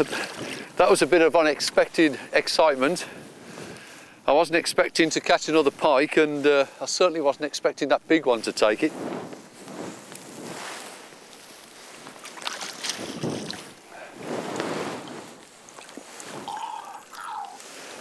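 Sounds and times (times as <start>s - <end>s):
shallow water splashing: 11.8s - 18.0s.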